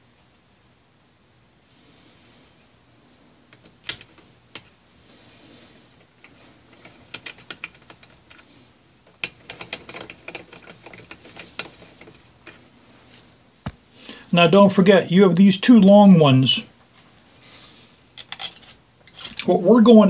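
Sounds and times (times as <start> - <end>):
metal bolts clicking and clinking: 3.5 - 4.7, 6.2 - 8.4, 9.0 - 12.6, 18.2 - 19.5.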